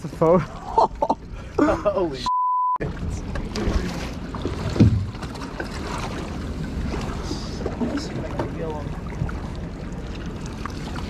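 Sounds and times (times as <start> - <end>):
water noise aboard a boat: 0.0 - 11.0
wind: 0.0 - 11.0
censor bleep tone: 2.3 - 2.8
thump: 4.8 - 5.2.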